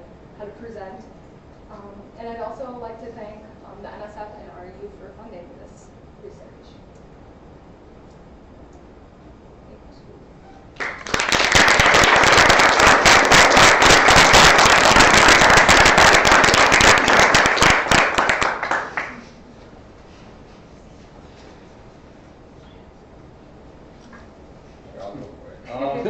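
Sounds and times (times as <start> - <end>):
audience applauding: 10.8 - 19.4.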